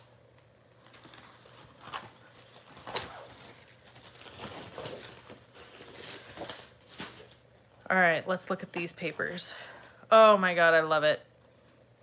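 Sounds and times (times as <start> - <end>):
paper packaging rustling: 0.8 - 7.7.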